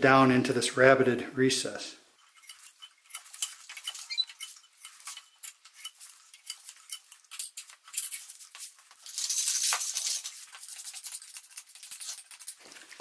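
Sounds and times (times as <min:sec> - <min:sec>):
putty knife scraping wood: 0:02.2 - 0:12.6.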